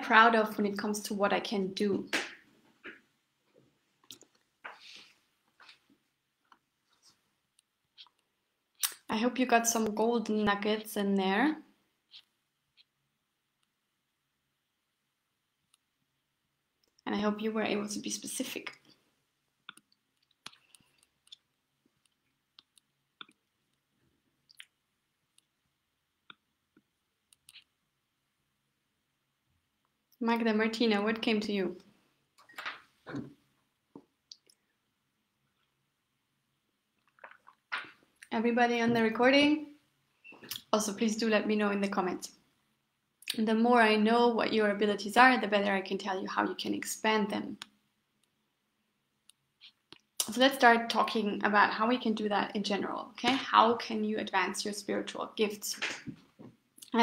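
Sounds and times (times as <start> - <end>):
mouth clicks and lip noises: 4.0 - 5.0, 7.5 - 9.1, 19.6 - 25.6, 26.2 - 27.8, 34.2 - 34.6, 37.0 - 38.3, 40.2 - 40.7, 43.2 - 43.4, 49.2 - 50.3, 56.8 - 57.0.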